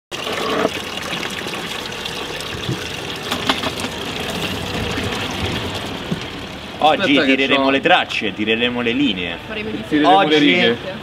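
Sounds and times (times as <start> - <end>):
water gushing into plastic bucket: 0.1 - 7.4.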